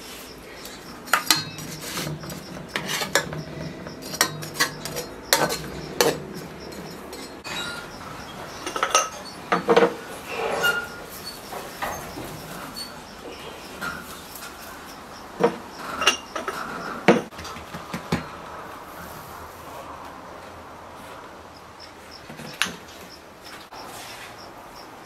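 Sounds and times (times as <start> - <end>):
metal utensil clinking on pot: 0.6 - 12.9.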